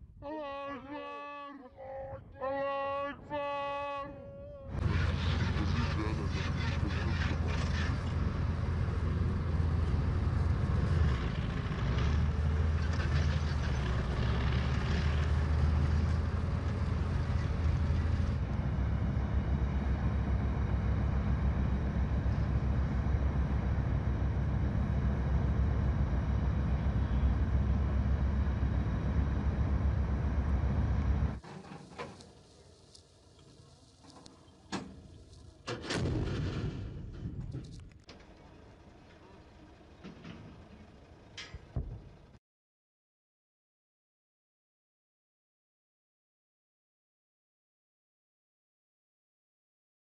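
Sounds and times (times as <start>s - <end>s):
heavy vehicle engine rumbling: 4.7s - 42.4s.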